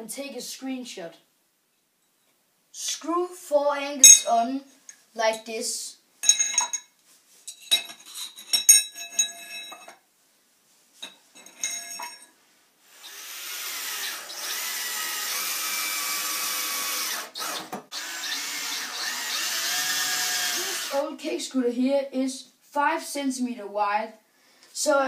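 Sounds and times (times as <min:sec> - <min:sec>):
metal brackets and screws clinking: 0:04.0 - 0:04.4, 0:06.2 - 0:10.0, 0:11.0 - 0:12.4
cordless drill driving screws: 0:12.9 - 0:21.0.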